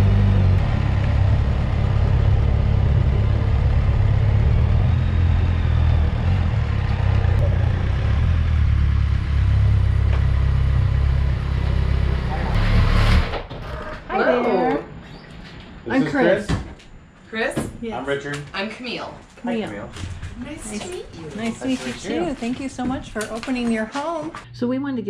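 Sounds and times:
motorcycle engine rumbling: 0.0s - 14.1s.

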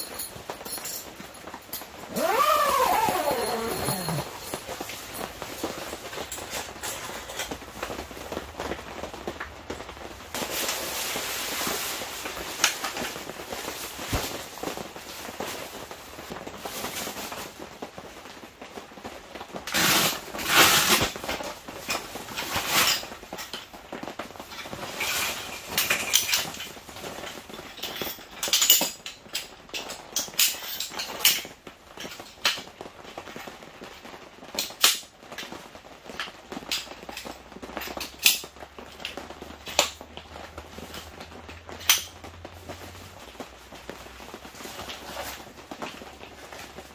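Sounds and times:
fabric bag rustling: 1.1s - 9.1s, 42.5s - 46.9s.

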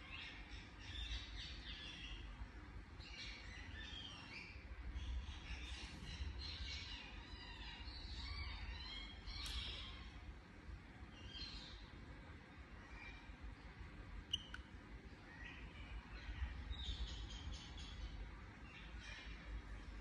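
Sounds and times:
low steady rumble: 0.0s - 20.0s
parakeet chirping and chattering: 14.3s - 14.6s.

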